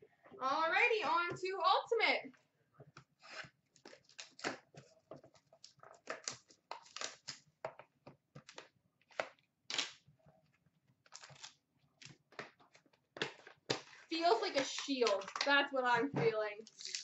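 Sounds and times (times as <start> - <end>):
plastic wrap tearing: 3.2 - 4.7, 5.6 - 7.5, 8.5 - 10.0, 11.0 - 12.2, 13.2 - 15.6, 16.6 - 17.0.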